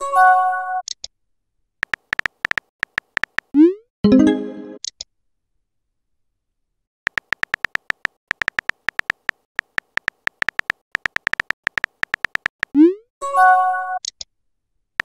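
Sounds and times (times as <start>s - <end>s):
phone keyboard tap clicks: 1.8s - 3.5s, 7.1s - 12.7s.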